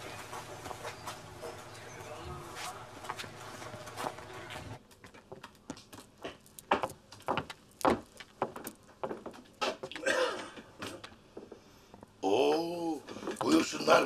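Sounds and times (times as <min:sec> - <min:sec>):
footsteps on wooden floor: 0:02.5 - 0:10.0, 0:13.1 - 0:13.7.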